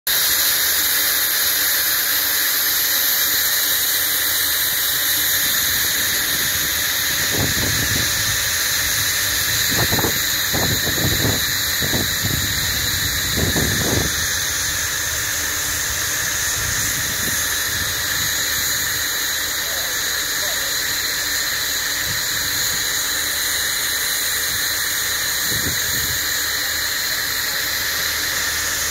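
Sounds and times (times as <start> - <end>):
steam locomotive hissing: 0.1 - 28.9.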